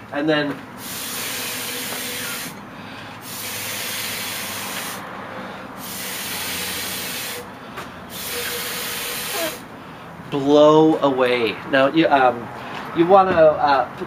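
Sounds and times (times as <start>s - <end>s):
mouth atomizer spraying hiss: 3.2s - 5.0s.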